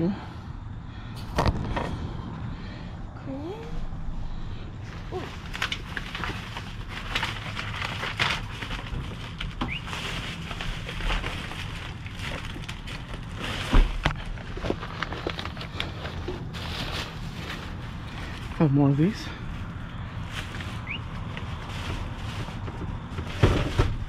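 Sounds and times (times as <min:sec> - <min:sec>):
heavy thump: 0:01.2 - 0:02.6
plastic bags and bubble wrap crinkling: 0:04.8 - 0:24.0.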